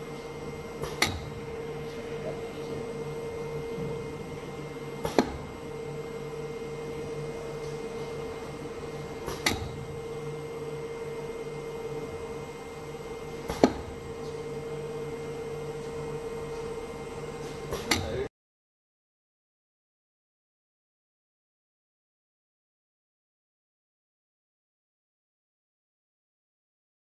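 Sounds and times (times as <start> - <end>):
pump machinery humming: 0.0 - 18.3.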